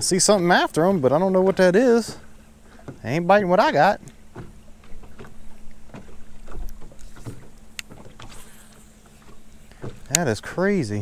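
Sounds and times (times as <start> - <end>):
faint steady hum: 0.0 - 11.0
waves lapping against boat hull: 0.0 - 11.0
light ticks: 6.6 - 8.0, 9.7 - 10.4.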